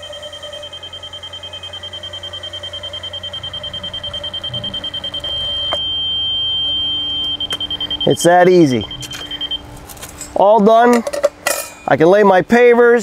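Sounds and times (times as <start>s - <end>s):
laser receiver beeping: 0.0s - 9.9s
steady beep tone: 0.0s - 9.9s.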